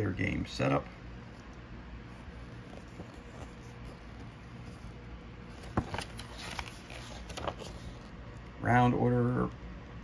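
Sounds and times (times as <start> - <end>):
room hum: 0.0 - 10.0
pages turning: 1.3 - 8.2.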